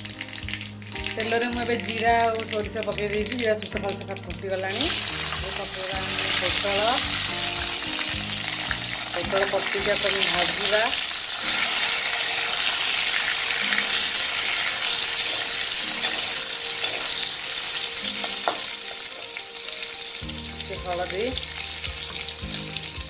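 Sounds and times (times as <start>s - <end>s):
oil sizzling: 0.0s - 23.0s
metal spatula stirring: 9.4s - 19.4s.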